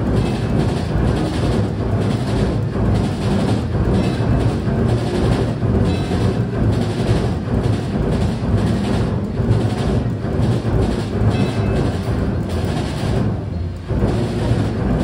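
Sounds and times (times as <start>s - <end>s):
carousel rumbling: 0.0s - 15.0s.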